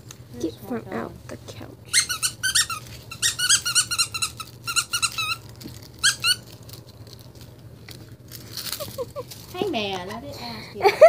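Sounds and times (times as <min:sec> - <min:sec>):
squeaky dog toy squeaking: 0:01.9 - 0:06.5.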